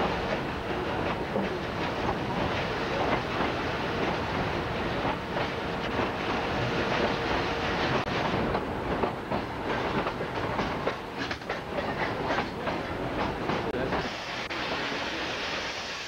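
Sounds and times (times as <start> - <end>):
train cars rumbling on track: 0.0 - 16.0
wheels clicking over rail joints: 8.4 - 13.9.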